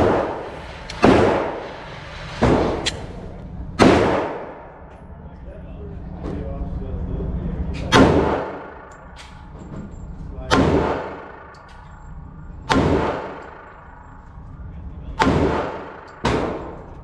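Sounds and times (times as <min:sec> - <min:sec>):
pistol shots echoing indoors: 0:00.0 - 0:03.0, 0:03.7 - 0:04.9, 0:07.8 - 0:09.4, 0:10.5 - 0:14.4, 0:15.2 - 0:17.0.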